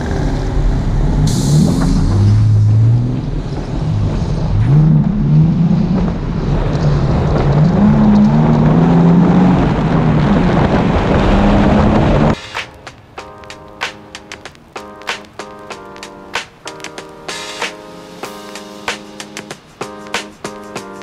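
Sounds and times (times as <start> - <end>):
car engine accelerating: 0.0 - 12.4
wind and road noise: 0.0 - 21.0.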